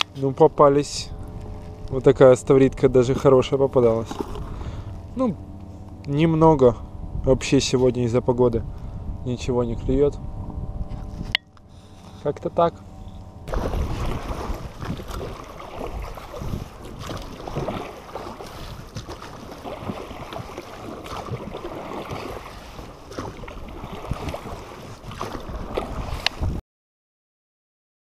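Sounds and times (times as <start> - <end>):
water splashing around rowing boat: 0.0 - 6.0, 10.9 - 26.6
wind buffeting microphone: 0.0 - 12.2, 12.9 - 26.6.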